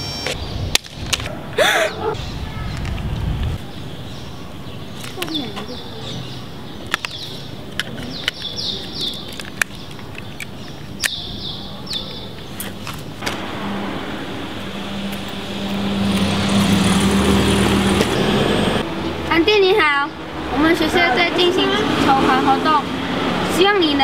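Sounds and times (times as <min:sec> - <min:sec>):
birds chirping: 0:00.0 - 0:24.0
street background: 0:00.0 - 0:24.0
car driving past: 0:13.2 - 0:19.2.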